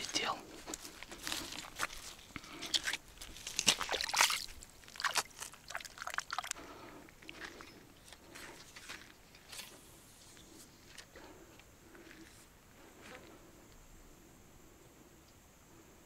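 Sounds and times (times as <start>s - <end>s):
water splashing and sloshing: 2.6s - 7.7s.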